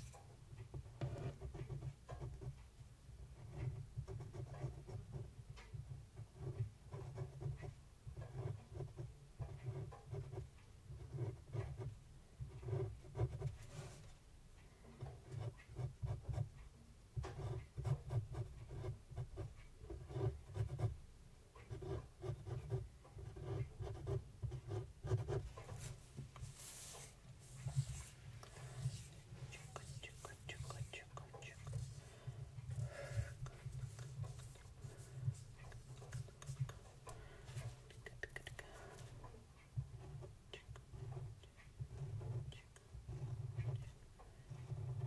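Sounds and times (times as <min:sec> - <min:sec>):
pen scratching on paper: 0:00.8 - 0:02.5, 0:03.4 - 0:05.3, 0:06.2 - 0:11.9, 0:12.5 - 0:14.1, 0:17.2 - 0:20.9, 0:21.6 - 0:37.0, 0:40.9 - 0:43.9, 0:44.5 - 0:45.0.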